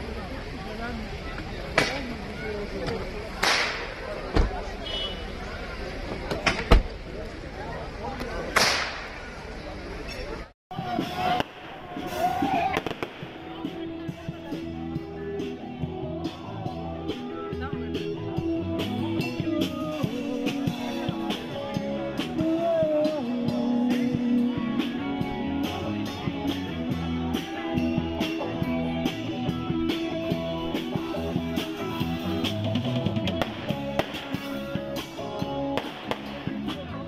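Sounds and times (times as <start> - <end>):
guitar: 10.7 - 37.0.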